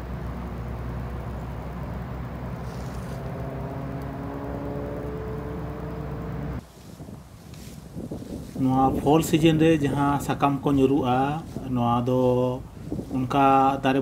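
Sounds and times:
car driving past: 0:02.2 - 0:06.6.

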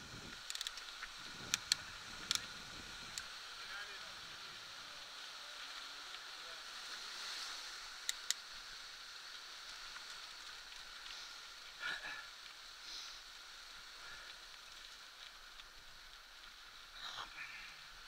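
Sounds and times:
bike tyres hissing on dirt: 0:00.0 - 0:18.0
sharp clicks: 0:08.0 - 0:08.4.

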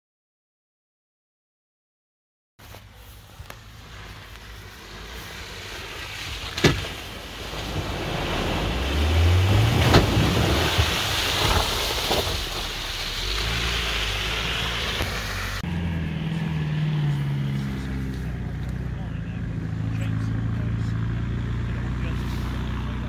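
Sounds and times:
water sloshing and spraying: 0:02.7 - 0:15.6
car engine revving: 0:02.9 - 0:23.0.

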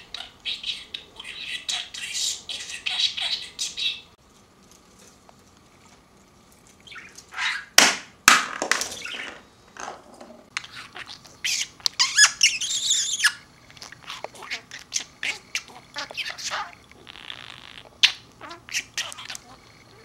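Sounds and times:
budgerigar chirping: 0:00.0 - 0:04.2, 0:06.8 - 0:07.8, 0:10.6 - 0:20.0.

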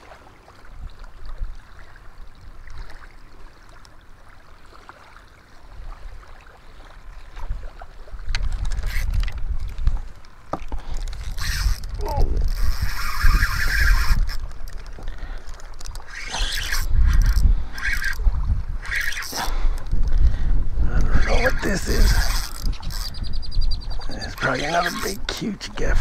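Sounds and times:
wind buffeting microphone: 0:07.1 - 0:26.0.

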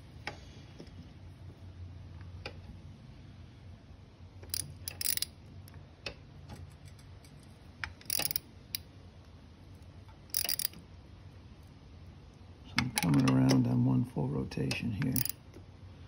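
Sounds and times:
ratchet wrench clicking: 0:04.5 - 0:05.3, 0:08.0 - 0:08.8, 0:10.3 - 0:10.8, 0:15.1 - 0:15.4.

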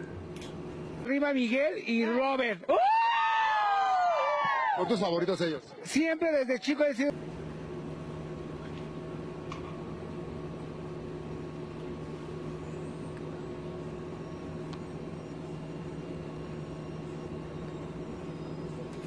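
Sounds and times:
low machine hum: 0:00.0 - 0:01.6, 0:07.1 - 0:19.0
faint click: 0:14.7 - 0:14.9.

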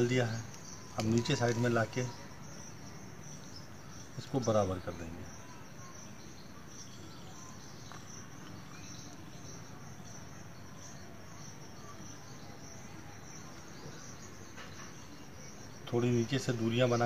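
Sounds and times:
plant stems rustling: 0:00.0 - 0:02.2
insects chirring: 0:00.0 - 0:17.0.

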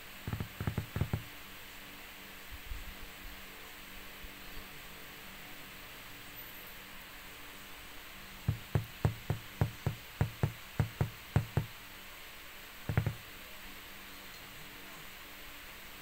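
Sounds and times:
faint steady hiss: 0:00.0 - 0:16.0
dull knocks: 0:00.3 - 0:01.2, 0:08.5 - 0:11.7, 0:12.9 - 0:13.2.

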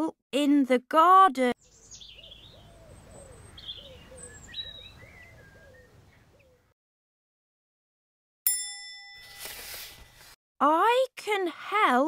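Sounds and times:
birds chirping and cooing: 0:01.6 - 0:06.7
bell-like ding: 0:08.5 - 0:09.7.

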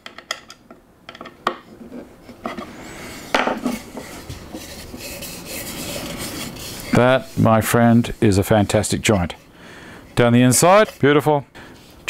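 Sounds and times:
wood pieces scraping and sliding: 0:01.2 - 0:09.4, 0:10.2 - 0:11.2.

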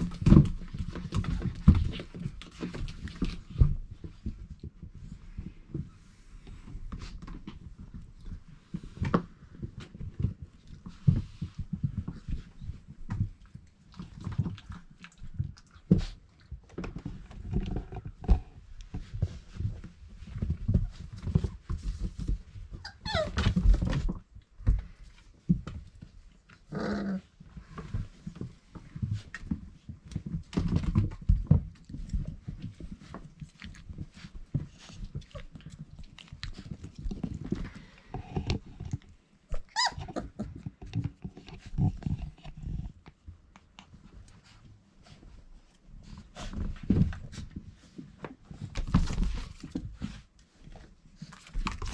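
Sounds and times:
puppies scuffling on bedding: 0:00.0 - 0:51.9
puppy yelping whines: 0:22.8 - 0:23.4, 0:39.6 - 0:40.4
puppy growls: 0:26.5 - 0:28.0, 0:38.1 - 0:42.9.

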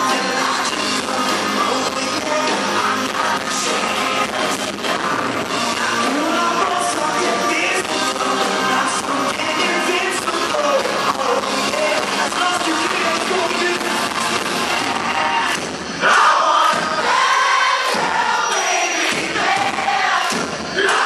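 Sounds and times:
man singing into a microphone: 0:00.0 - 0:14.2
live pop-rock band: 0:00.0 - 0:21.0.

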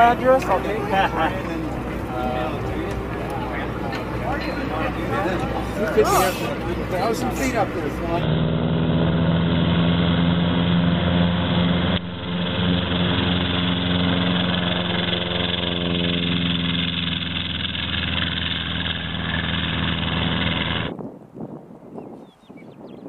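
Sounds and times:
propeller engine drone: 0:00.0 - 0:21.0.

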